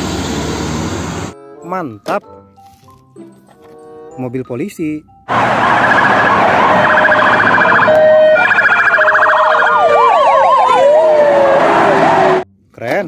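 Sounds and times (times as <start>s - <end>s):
siren wailing up and down: 5.3s - 12.4s
sirens yelping: 5.3s - 12.4s.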